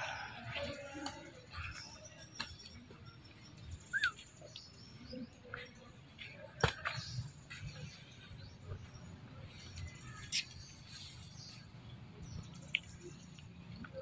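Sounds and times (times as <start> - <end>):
monkey squeak: 3.9 - 4.3.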